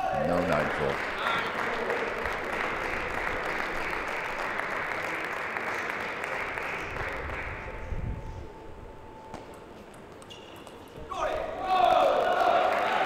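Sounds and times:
spectators applauding: 0.1s - 7.9s, 12.0s - 13.0s.

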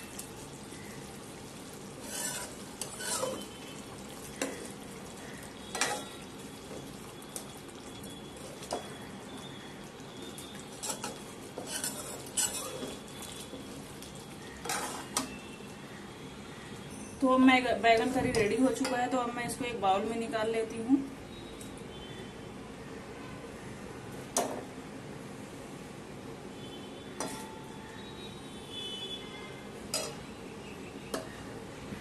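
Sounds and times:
low steady sizzle: 0.0s - 32.0s
metal spoon scraping a pan: 1.9s - 4.7s, 5.7s - 6.2s, 10.7s - 13.6s, 14.5s - 15.4s, 27.2s - 27.6s, 29.9s - 30.3s.

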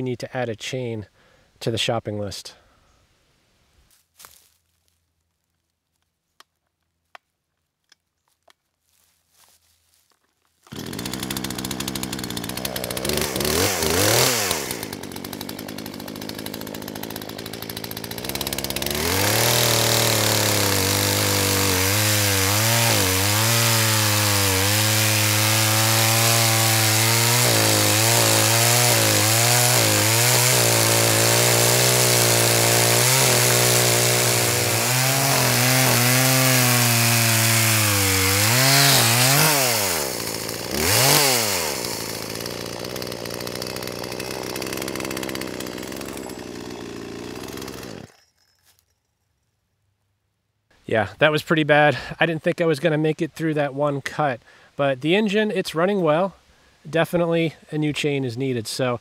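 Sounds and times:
chainsaw cutting log: 10.6s - 48.8s.

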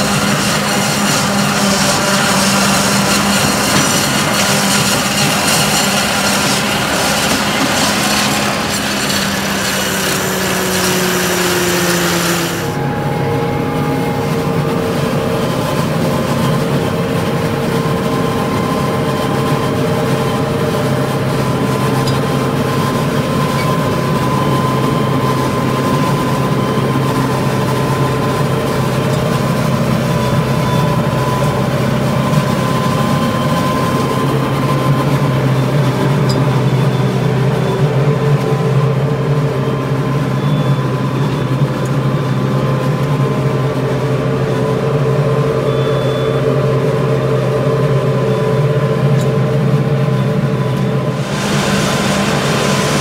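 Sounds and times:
harvester chopping corn: 0.0s - 12.8s
harvester whine: 0.0s - 53.0s
tractor engine drone: 0.0s - 53.0s.

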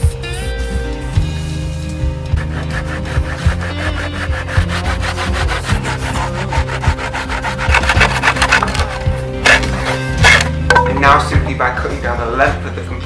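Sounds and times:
hand saw cutting wood: 2.3s - 10.7s.

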